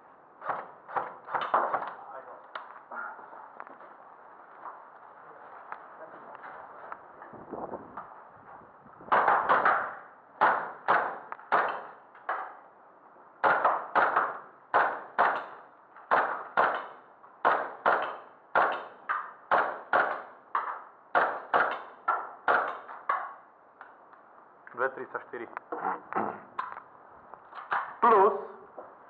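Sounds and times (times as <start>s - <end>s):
airsoft gun shots echoing: 9.1s - 12.5s, 13.4s - 20.4s, 21.1s - 22.9s.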